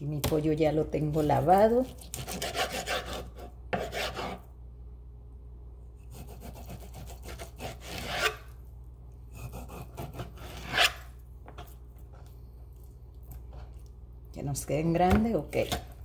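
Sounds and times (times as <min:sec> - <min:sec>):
knife slicing meat on cutting board: 0:01.9 - 0:04.5, 0:06.1 - 0:08.5, 0:09.3 - 0:11.1.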